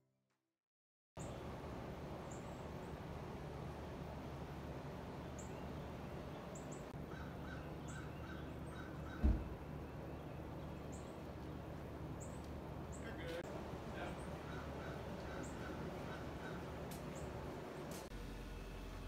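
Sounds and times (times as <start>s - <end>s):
birds chirping: 1.2s - 18.1s
low thump: 9.2s - 9.6s.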